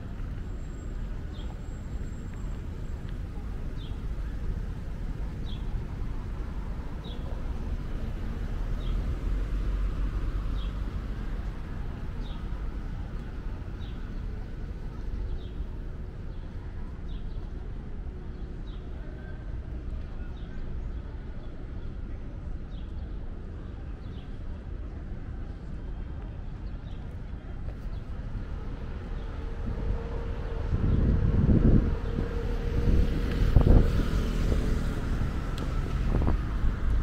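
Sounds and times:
city traffic rumble: 0.0 - 37.0.

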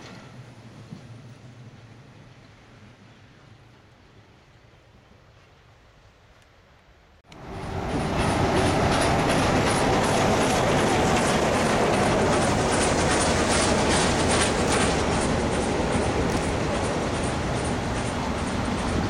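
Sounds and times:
train on rails: 0.0 - 19.0
steam locomotive beat: 7.4 - 19.0.

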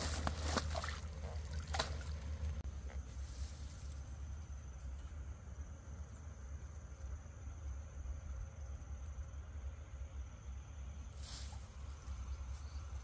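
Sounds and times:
water trickling and splashing: 0.0 - 2.6
insects droning: 0.0 - 13.0.

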